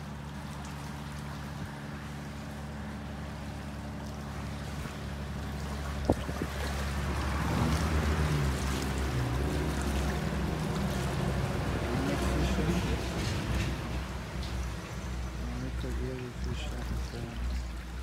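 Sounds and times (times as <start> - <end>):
steady low hum: 0.0 - 7.4
water splashing and trickling: 0.0 - 18.0.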